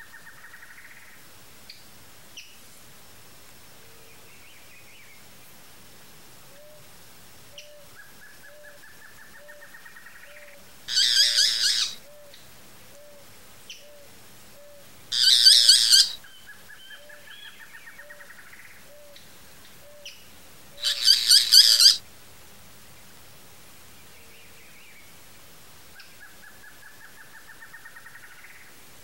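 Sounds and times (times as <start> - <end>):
bird low hoots: 10.3 - 13.2, 13.8 - 16.2, 20.8 - 22.0
bird harsh rattling calls: 10.9 - 12.0, 15.1 - 16.2, 20.8 - 22.0.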